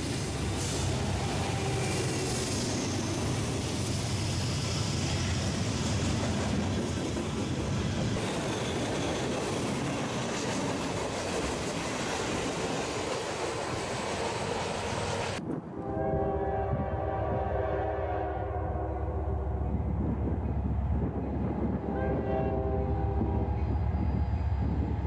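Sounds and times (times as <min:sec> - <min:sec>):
steel wheels clattering on rail: 0:00.0 - 0:15.4
freight train rolling past: 0:00.0 - 0:25.0.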